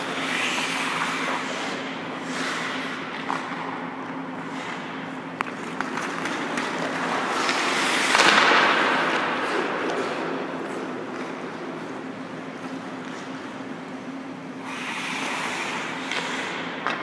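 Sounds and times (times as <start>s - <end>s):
skates scraping on ice: 0.0s - 13.6s, 14.6s - 17.0s
machinery hum: 0.0s - 17.0s
stick and puck clicks: 4.7s - 11.8s
loud scraping hiss on ice: 14.6s - 16.5s.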